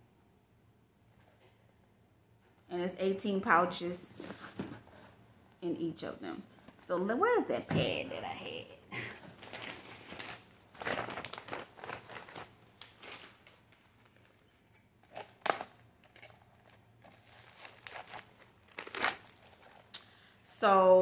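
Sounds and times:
plastic packaging crinkling: 9.4 - 20.2.

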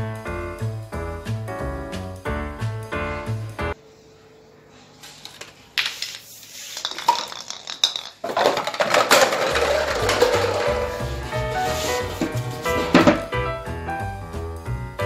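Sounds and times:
dominoes toppling: 5.1 - 11.3
chain reaction parts clattering: 6.8 - 11.0.

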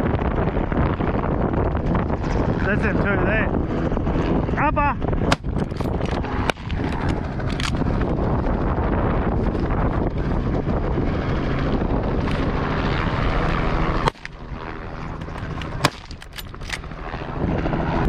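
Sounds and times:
helicopter rotor and engine drone: 0.0 - 18.0
sharp crack: 5.3 - 7.8, 14.0 - 14.5, 15.2 - 16.8.

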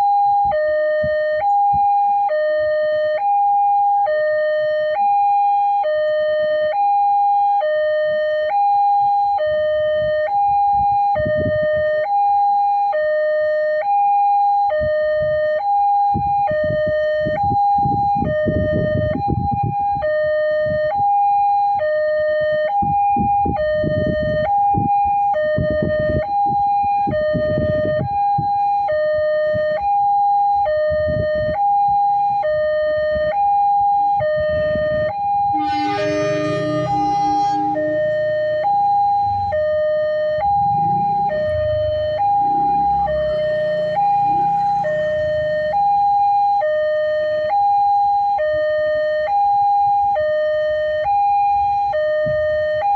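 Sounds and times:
railroad crossing alarm tones: 0.0 - 52.9
low rumble: 35.6 - 39.9.

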